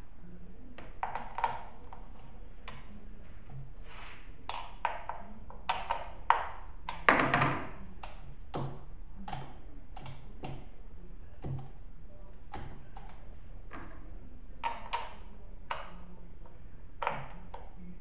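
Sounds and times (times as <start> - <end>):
small metal clicks and taps: 0.8 - 2.9, 4.5 - 10.7, 14.6 - 17.7.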